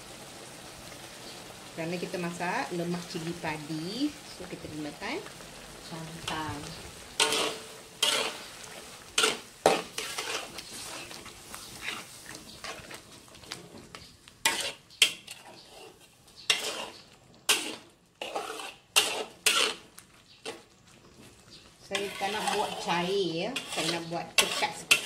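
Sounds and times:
faint sizzle: 0.0 - 25.0
metal spatula scraping wok: 6.1 - 20.7, 21.9 - 25.0.

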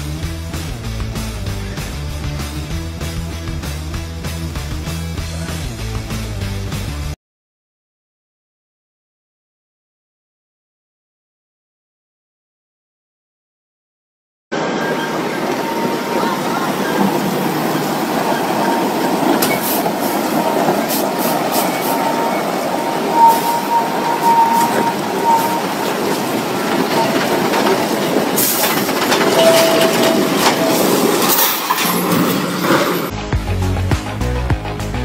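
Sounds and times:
heavy trucks mechanical rumble: 14.8 - 33.1
thin metal squeal: 20.9 - 27.5, 28.4 - 33.0
clanks and knocks: 25.7 - 32.9.

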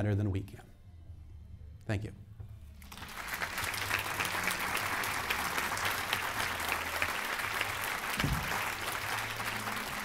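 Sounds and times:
audience applauding: 2.8 - 10.0
low thump: 8.2 - 8.5.

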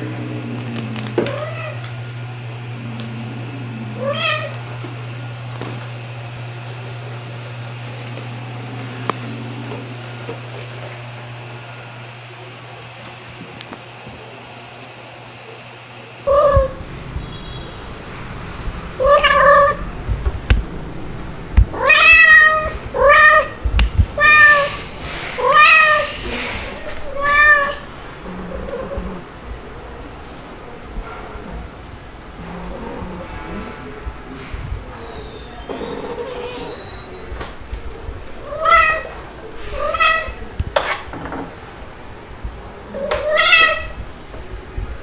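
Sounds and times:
steady low hum: 0.0 - 45.0
cat meowing: 4.0 - 4.6, 16.3 - 17.6, 19.0 - 19.9, 21.7 - 23.6, 24.2 - 24.8, 25.4 - 29.2, 32.6 - 37.3, 38.4 - 40.5, 42.9 - 44.0
kitten meowing: 16.3 - 16.8, 19.0 - 19.9, 21.7 - 23.6, 24.2 - 24.8, 25.4 - 27.9, 43.0 - 44.0.

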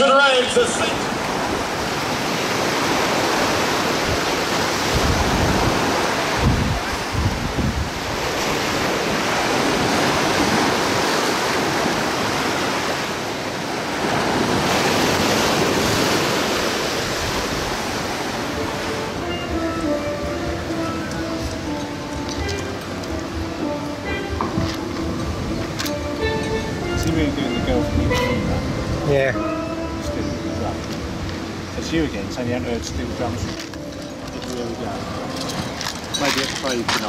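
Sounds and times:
surf washing onto beach: 0.0 - 37.0
wind buffeting microphone: 1.0 - 33.9.

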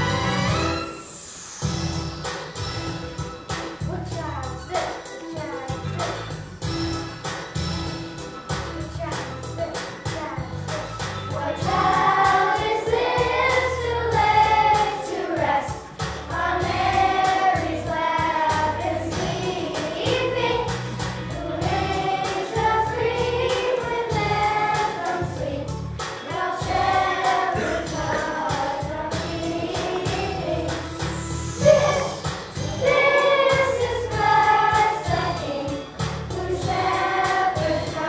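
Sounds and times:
children's choir singing: 11.3 - 38.0.

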